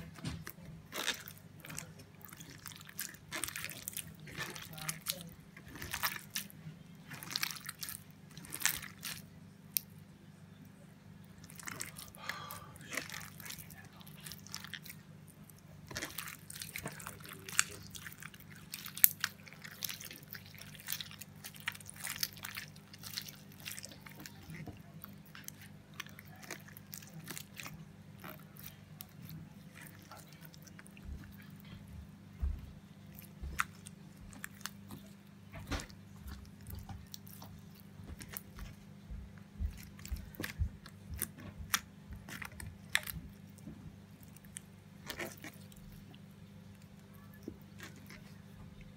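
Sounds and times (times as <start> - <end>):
soft low thumps: 31.0 - 34.7, 38.1 - 42.3.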